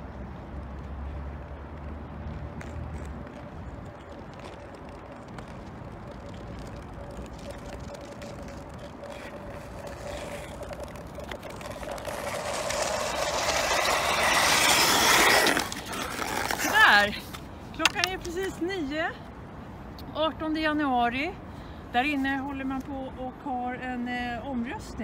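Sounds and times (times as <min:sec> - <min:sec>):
ice skates scraping on ice: 0:02.4 - 0:18.6.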